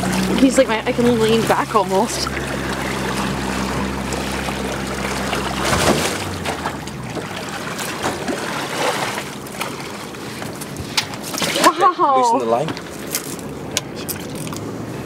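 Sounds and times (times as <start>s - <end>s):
boat motor idling: 0.0s - 15.0s
water splashing and sloshing: 0.0s - 15.0s.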